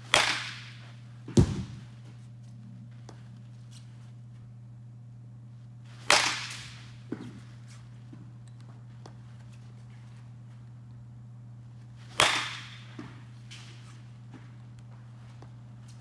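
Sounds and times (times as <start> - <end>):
bat cracking against ball: 0.0 - 1.9, 6.0 - 7.4, 12.0 - 14.0
steady low hum: 0.0 - 16.0
heavy thud of ball: 1.3 - 1.8
ball landing thud: 1.3 - 1.9.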